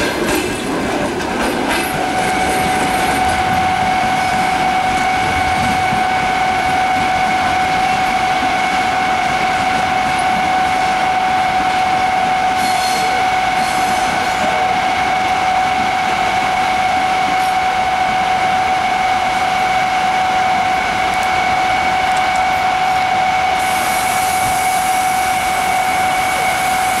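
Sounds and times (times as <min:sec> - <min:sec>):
locomotive whine and fan rushing: 0:00.0 - 0:27.0
high hiss: 0:23.6 - 0:27.0.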